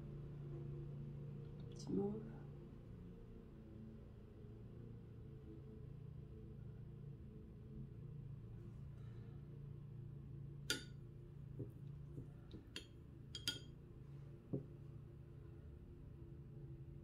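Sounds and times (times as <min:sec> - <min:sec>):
faint low hum: 0:00.0 - 0:17.0
brush clinking on palette: 0:12.6 - 0:13.8.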